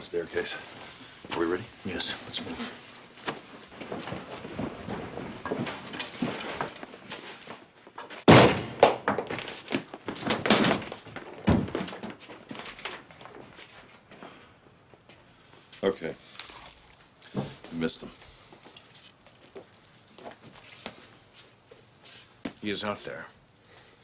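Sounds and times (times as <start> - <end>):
door crashing open: 8.2 - 9.5, 10.2 - 12.0
heavy thuds and bangs: 8.3 - 9.4.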